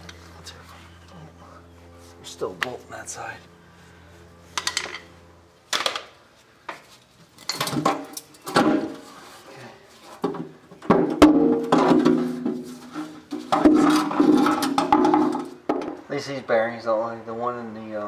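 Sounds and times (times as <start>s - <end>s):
metal clanks and scrapes: 11.5s - 15.6s.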